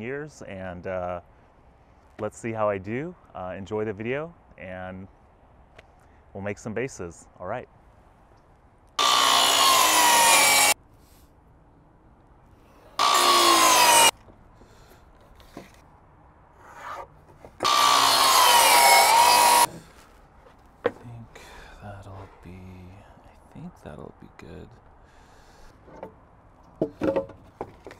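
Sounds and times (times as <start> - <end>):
miter saw cutting wood: 9.0 - 10.8, 13.0 - 14.1, 17.6 - 19.8.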